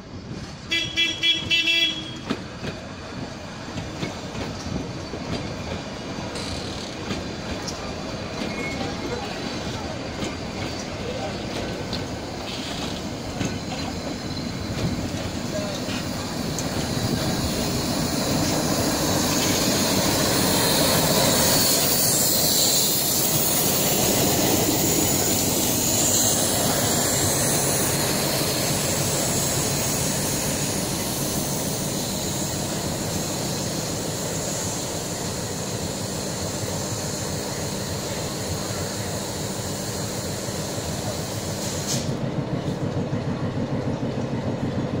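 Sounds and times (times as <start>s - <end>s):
train coaches rolling past: 0.0s - 45.0s
high wheel squeal: 8.3s - 9.4s, 12.2s - 30.8s.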